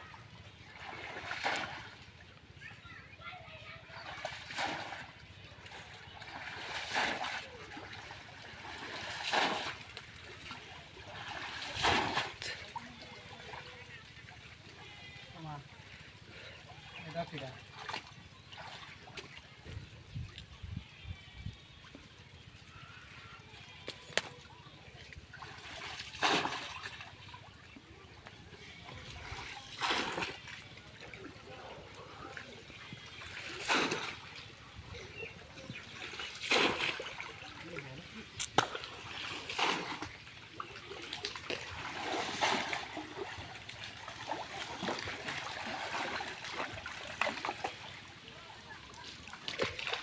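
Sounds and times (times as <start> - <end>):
water splashing and sloshing: 0.0 - 50.0
pot dipped into water splash: 25.9 - 27.0, 36.4 - 37.2.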